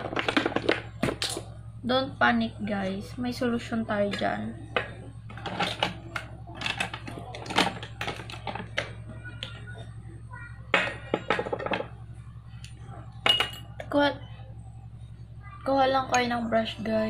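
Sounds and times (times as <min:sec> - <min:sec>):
steady low hum: 0:00.0 - 0:17.0
makeup items clattering: 0:04.8 - 0:09.0.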